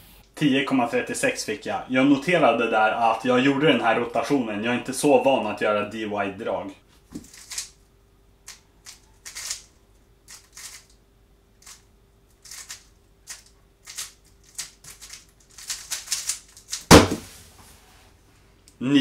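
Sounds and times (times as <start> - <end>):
loud knock: 16.9 - 17.3.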